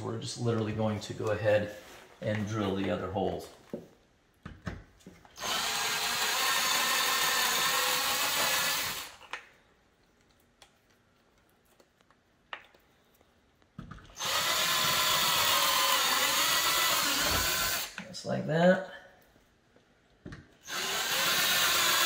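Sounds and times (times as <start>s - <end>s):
cordless drill motor whining: 5.4s - 9.4s, 14.1s - 18.0s, 20.6s - 22.0s.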